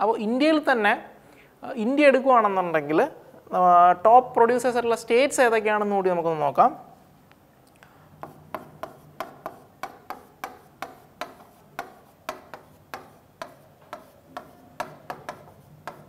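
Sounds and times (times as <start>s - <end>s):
marker tapping on whiteboard: 8.1s - 16.0s.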